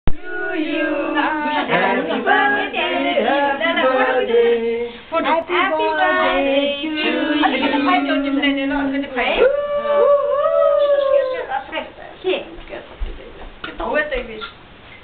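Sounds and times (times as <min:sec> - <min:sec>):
women and children singing: 0:00.1 - 0:09.1.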